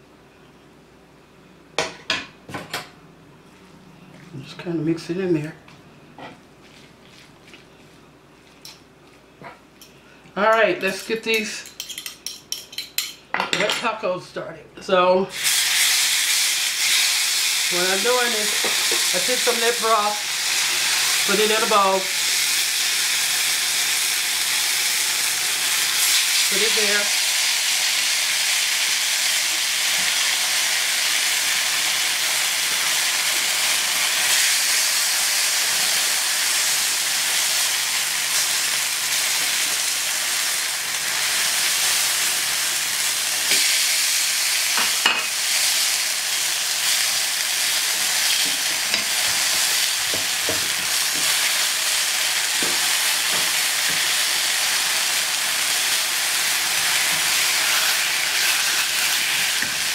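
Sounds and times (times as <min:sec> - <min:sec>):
tortillas sizzling on griddle: 0:15.4 - 0:59.9.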